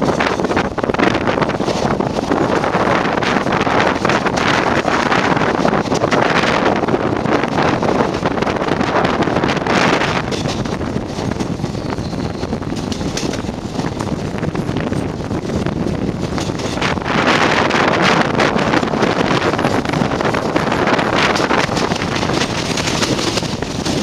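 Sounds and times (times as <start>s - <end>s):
train rumbling on rails: 0.0s - 24.0s
wind rushing on microphone: 0.0s - 24.0s.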